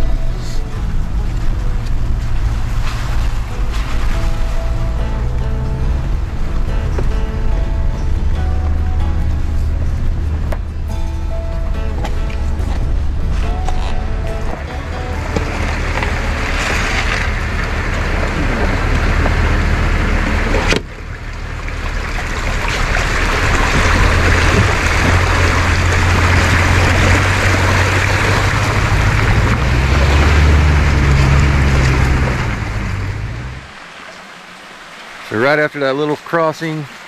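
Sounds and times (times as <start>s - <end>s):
pickup truck engine running: 0.0s - 35.8s
water rushing around wheels: 0.0s - 37.0s.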